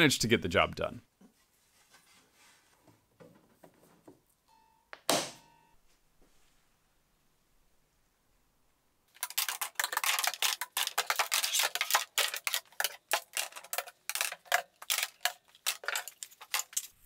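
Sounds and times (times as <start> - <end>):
metal clamps clicking and clinking: 12.3 - 17.0.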